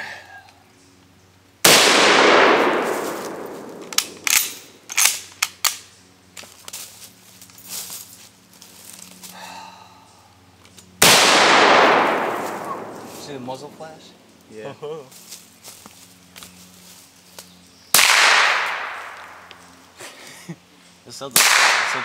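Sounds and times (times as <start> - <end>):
rifle shot with echo: 1.6 - 4.7, 11.0 - 13.8, 17.9 - 19.4, 21.4 - 22.0
sharp metallic clicks: 3.3 - 5.9.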